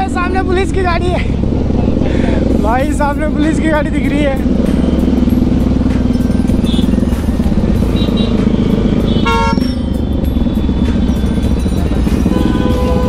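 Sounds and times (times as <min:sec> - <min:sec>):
motorcycle engine running: 0:00.0 - 0:13.0
vehicle horn honking: 0:06.6 - 0:07.1, 0:07.8 - 0:13.0.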